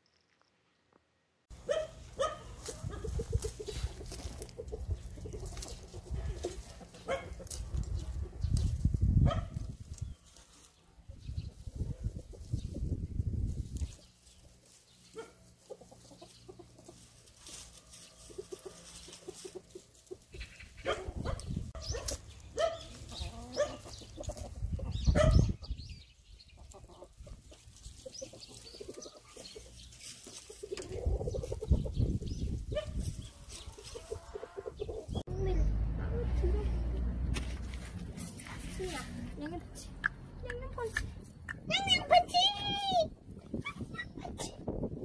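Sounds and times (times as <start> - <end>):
chickens clucking: 1.6 - 35.6.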